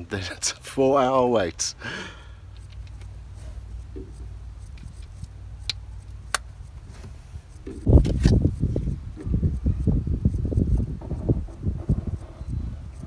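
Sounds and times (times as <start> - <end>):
wind buffeting microphone: 7.6 - 13.0.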